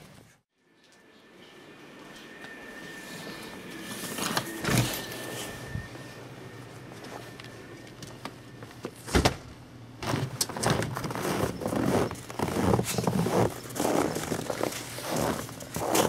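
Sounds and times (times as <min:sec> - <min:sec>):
footsteps crunching in snow: 0:10.0 - 0:16.0.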